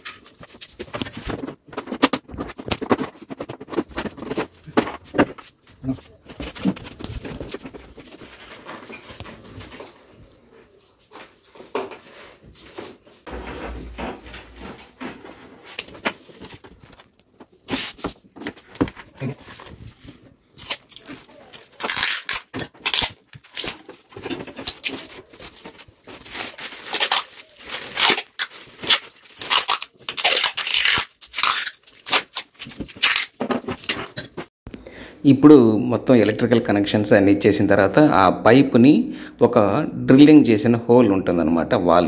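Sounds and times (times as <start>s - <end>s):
rustling and handling: 0.0s - 34.5s
tape tearing off roll: 26.4s - 34.2s.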